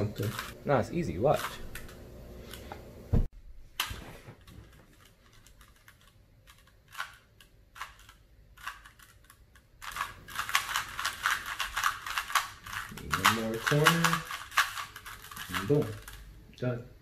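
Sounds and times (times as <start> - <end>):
puzzle cube plastic layers clicking: 4.6 - 16.3.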